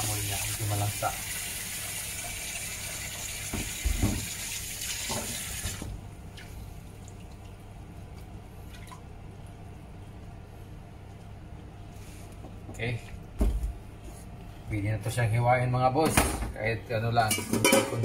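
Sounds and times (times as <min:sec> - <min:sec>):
knocks against sink: 0:03.5 - 0:04.3
tap running into steel sink: 0:03.5 - 0:04.4.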